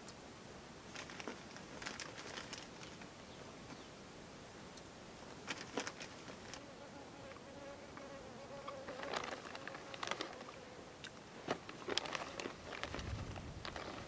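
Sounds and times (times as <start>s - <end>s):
small clicks and rustles: 0.9s - 3.8s, 4.8s - 6.7s, 7.3s - 14.0s
insect buzzing: 5.9s - 11.2s.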